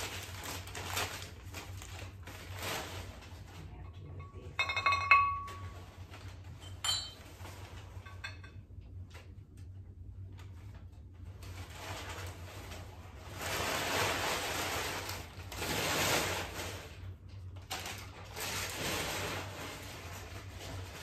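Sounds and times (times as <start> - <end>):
paper rustling and crinkling: 0.0 - 3.8, 10.3 - 21.0.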